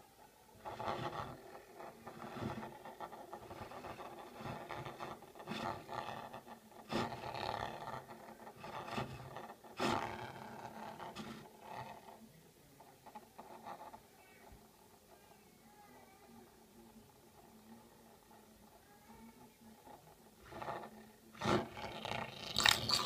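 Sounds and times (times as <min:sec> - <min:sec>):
magnet scraping on desk: 0:00.6 - 0:12.2, 0:19.8 - 0:23.0.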